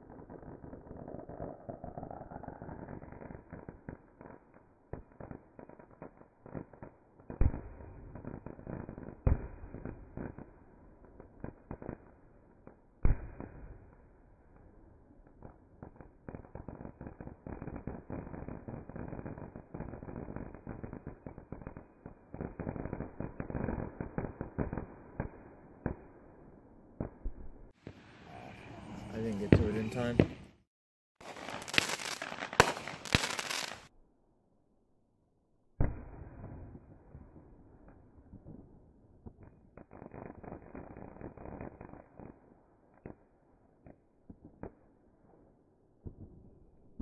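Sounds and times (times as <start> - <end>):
fireworks crackling: 0.0 - 33.9, 35.9 - 44.9
loud fireworks bangs: 27.1 - 30.5, 31.2 - 33.9.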